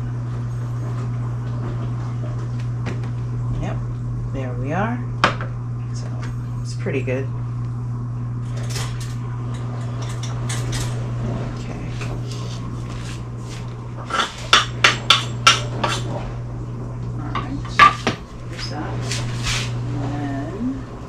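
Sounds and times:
steady low hum: 0.0 - 21.0
knife and cutting board clattering: 12.0 - 16.1.

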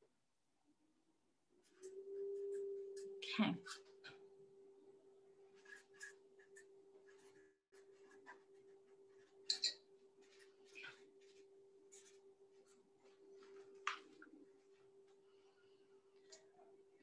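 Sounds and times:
butter knife scraping: 5.5 - 12.8.

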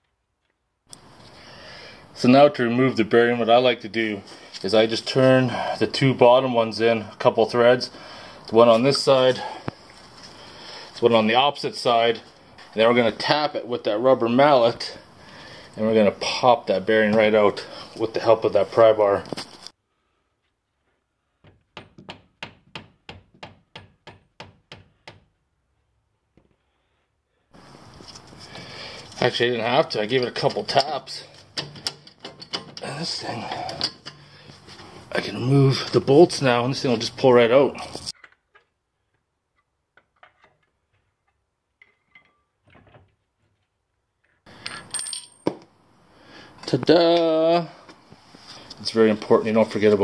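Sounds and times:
wheel hub scraping and rattling: 27.8 - 38.2
metallic clicks of bolts: 30.2 - 32.8.

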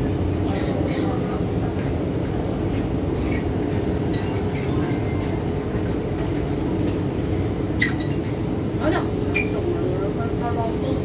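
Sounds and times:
metro train rumbling: 0.0 - 11.0.

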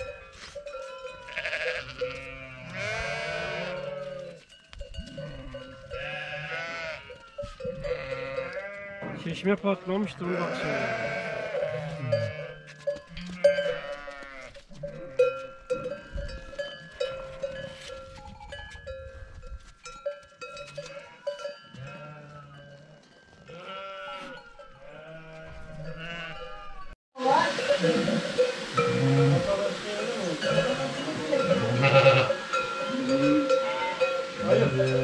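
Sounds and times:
small bells clinking: 0.0 - 2.4, 3.8 - 9.0, 14.8 - 23.6, 30.0 - 35.0
sheep and goats bleating: 0.0 - 18.0, 20.5 - 35.0.

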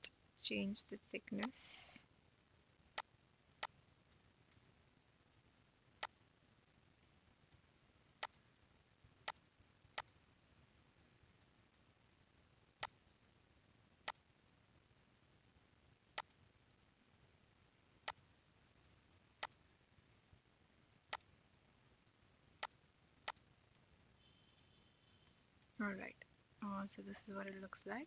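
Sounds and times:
faint hiss: 1.4 - 2.1
computer mouse clicking: 8.2 - 8.4, 10.0 - 10.2, 16.2 - 16.4, 18.1 - 18.3, 19.4 - 19.6, 22.6 - 23.5.

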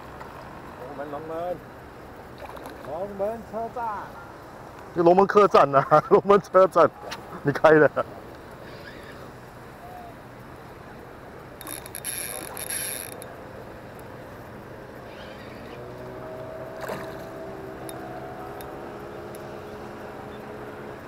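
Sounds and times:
fishing reel gears whirring: 8.5 - 9.3, 11.4 - 13.8, 14.8 - 20.8.

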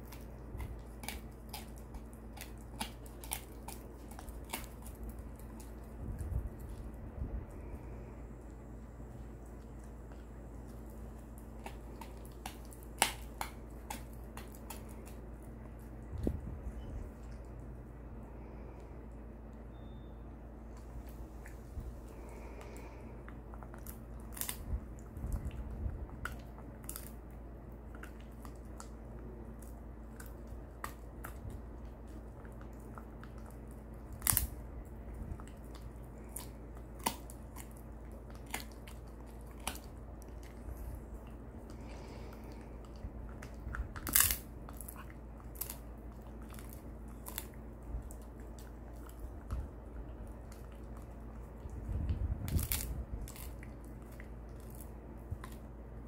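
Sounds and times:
teeth clicks: 0.0 - 6.8, 10.1 - 15.2
dog chewing a bone: 0.0 - 18.0, 20.7 - 56.0
low hum: 0.0 - 56.0.

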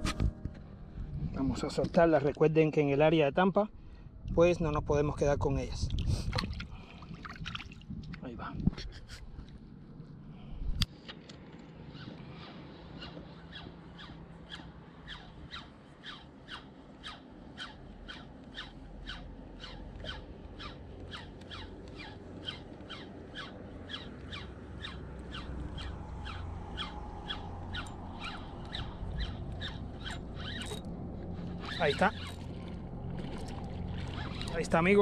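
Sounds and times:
fishing reel squeaking: 13.0 - 32.5, 34.1 - 35.0.

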